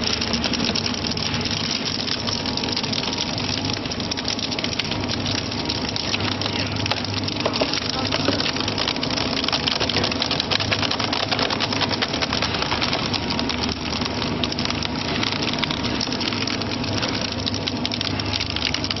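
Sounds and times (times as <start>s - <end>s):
shredder machine drone: 5.6s - 19.0s
shredder snapping and cracking: 9.3s - 13.6s.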